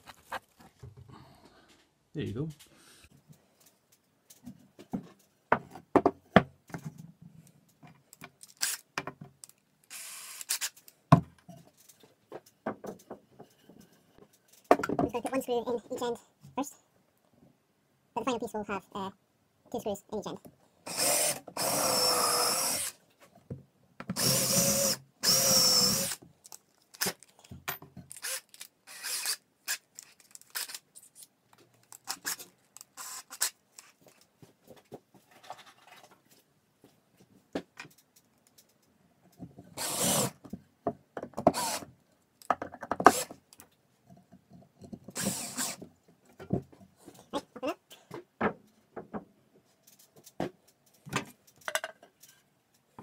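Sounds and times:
power drill driving screws: 8.6 - 8.8, 9.9 - 10.8, 20.9 - 23.0, 24.2 - 26.2, 28.1 - 29.8, 33.0 - 33.5, 39.8 - 40.4, 41.5 - 41.8, 43.1 - 43.4, 45.2 - 45.8.

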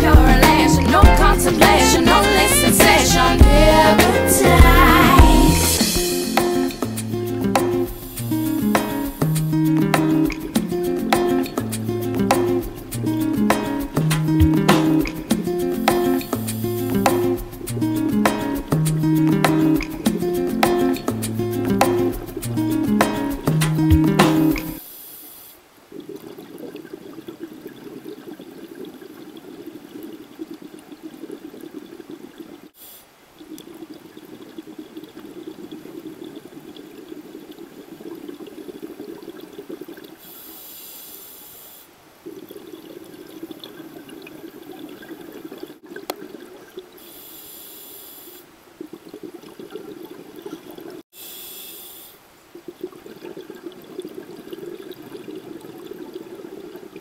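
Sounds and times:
regulator inhalation hiss: 7.8 - 9.3, 24.8 - 25.6, 32.8 - 33.1, 40.2 - 41.9, 47.0 - 48.4, 51.1 - 52.2
exhaled air bubbling underwater: 25.8 - 32.7, 33.3 - 40.6, 42.2 - 47.2, 48.8 - 51.0, 52.5 - 57.0.

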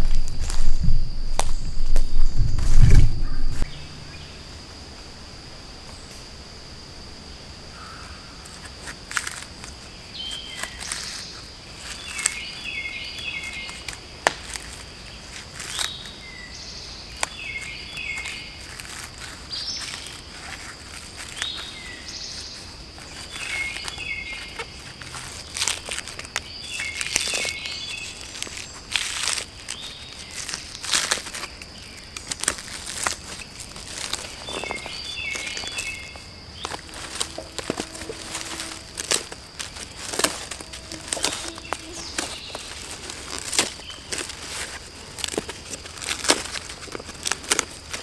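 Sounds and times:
knife cutting and prying bark: 8.4 - 16.2, 17.1 - 48.0
high-pitched insect drone: 14.7 - 47.1.

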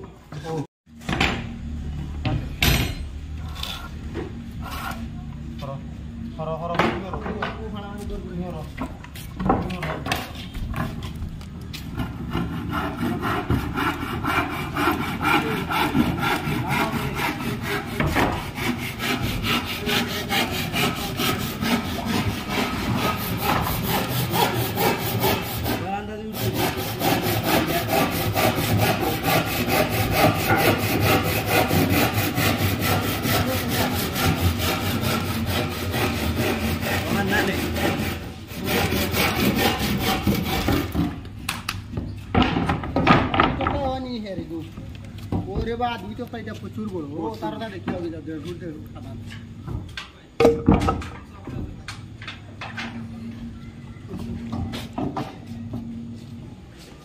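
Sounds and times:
handsaw cutting wood: 11.9 - 41.2.

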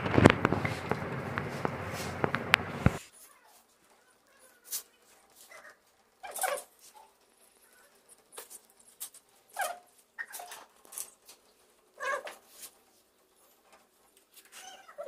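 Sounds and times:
screw squeaking: 5.5 - 11.1.

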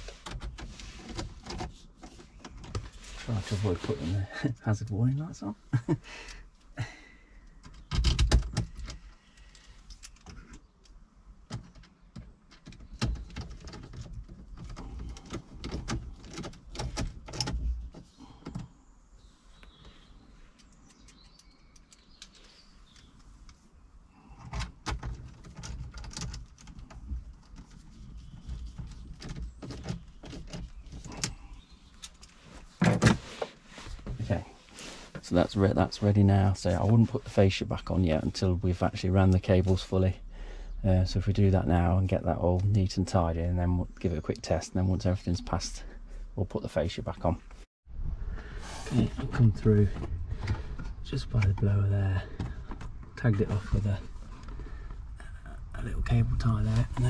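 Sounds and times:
clicks and rattles at dashboard: 7.5 - 10.7, 11.4 - 18.7, 24.4 - 31.4.

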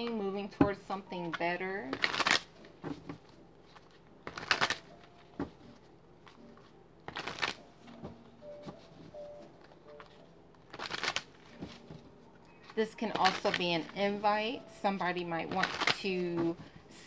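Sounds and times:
cards shuffled by hand: 1.3 - 8.0, 8.6 - 12.1, 13.1 - 13.9, 15.5 - 16.5.

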